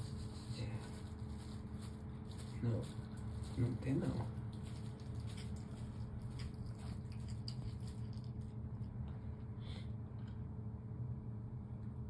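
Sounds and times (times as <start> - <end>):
low background hum: 0.0 - 12.0
cat chewing meat: 1.4 - 9.2.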